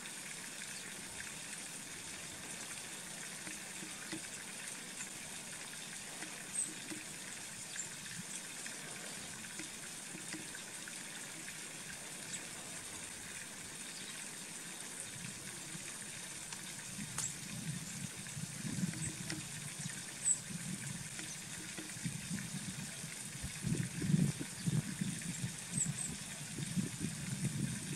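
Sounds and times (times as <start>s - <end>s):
running water trickling: 0.0s - 27.9s
faint high ticks: 6.0s - 8.5s, 9.4s - 10.6s, 15.6s - 17.4s, 18.7s - 22.0s.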